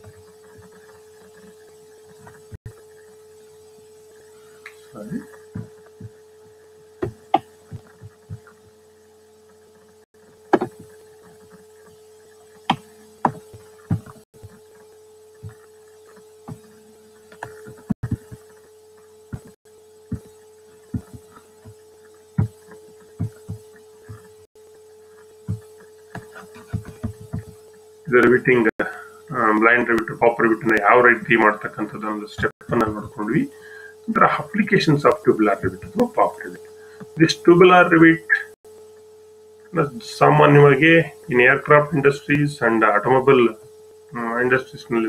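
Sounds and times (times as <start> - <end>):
steady electrical hum: 0.0 - 45.0.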